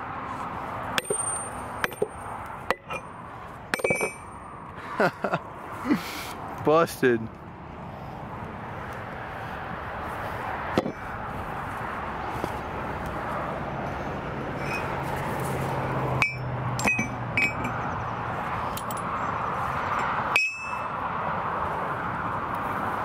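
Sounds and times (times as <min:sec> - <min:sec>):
metal plate clinking on anvil: 0:01.0 - 0:03.1, 0:03.7 - 0:04.4, 0:16.2 - 0:17.8, 0:20.4 - 0:20.9.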